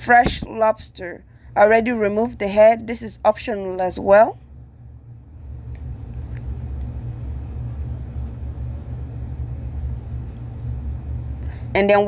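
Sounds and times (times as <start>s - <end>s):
low rumble: 0.0s - 12.0s.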